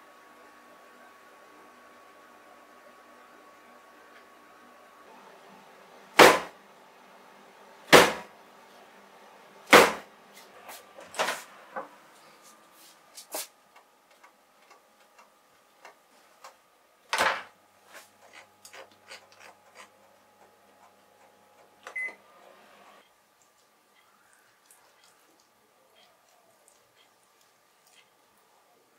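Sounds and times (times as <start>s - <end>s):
short oven beep: 21.9s - 22.2s.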